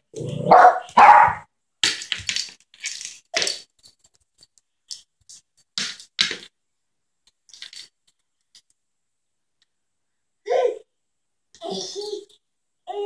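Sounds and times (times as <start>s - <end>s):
dog barking: 0.4s - 1.5s.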